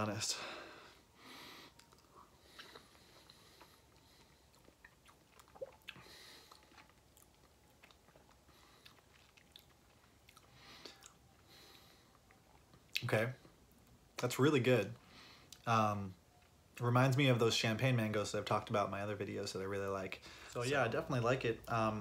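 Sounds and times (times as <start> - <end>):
faint chewing: 1.5 - 14.0
wet mouth clicks: 4.5 - 8.3.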